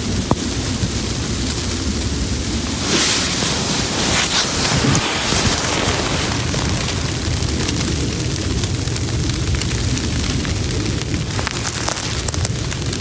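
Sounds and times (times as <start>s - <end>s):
wind noise on microphone: 0.0s - 13.0s
nylon rustling: 2.5s - 8.0s, 11.2s - 12.5s.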